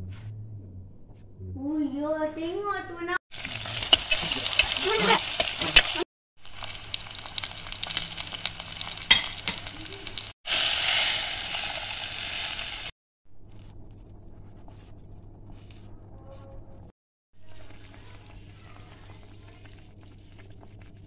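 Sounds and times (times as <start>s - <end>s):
spices sizzling in hot oil: 3.3s - 12.9s, 17.4s - 21.0s.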